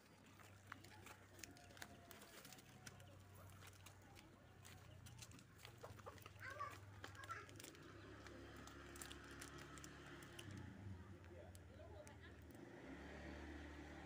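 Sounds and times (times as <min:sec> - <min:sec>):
chicken clucking: 0:00.3 - 0:07.4.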